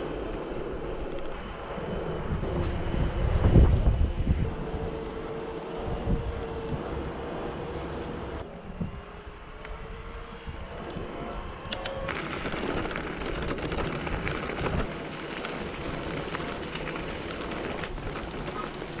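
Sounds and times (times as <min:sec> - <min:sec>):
bicycle tyres rolling on road: 0:00.0 - 0:08.4, 0:12.0 - 0:19.0
tyres crunching over gravel: 0:12.1 - 0:19.0.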